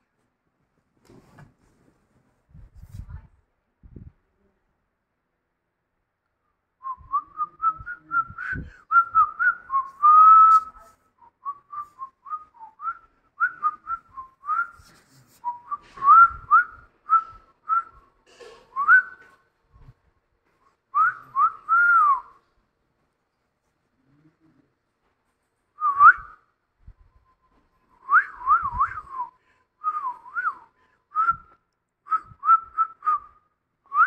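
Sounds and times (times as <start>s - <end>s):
person whistling chirpy notes: 6.8s - 18.0s, 27.0s - 31.5s.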